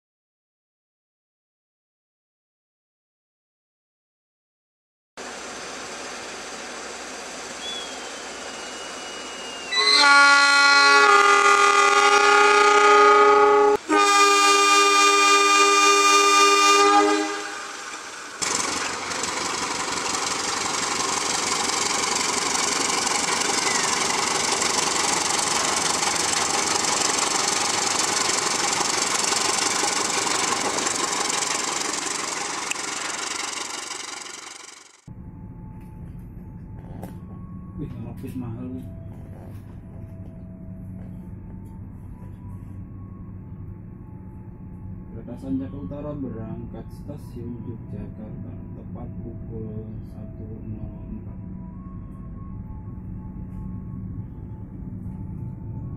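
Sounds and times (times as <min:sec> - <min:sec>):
train passing close by: 0:05.2 - 0:36.2
locomotive horn blasts: 0:08.5 - 0:18.0.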